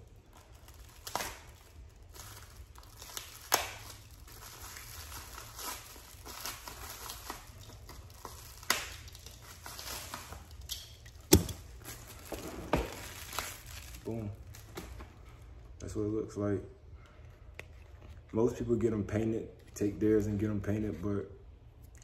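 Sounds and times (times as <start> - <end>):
plastic packaging crackling rustle: 0.0 - 15.7.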